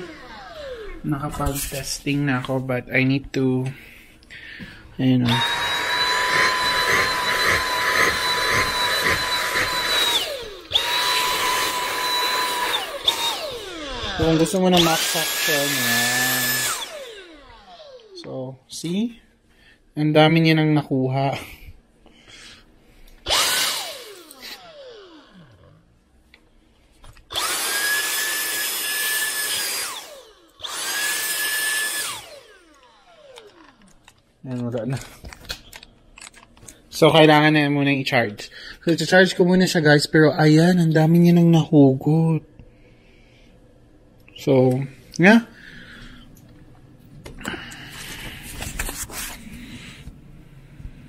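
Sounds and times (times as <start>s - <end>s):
vacuum cleaner motor whine: 0.0s - 2.4s, 5.2s - 18.4s, 23.2s - 25.9s, 27.3s - 33.8s.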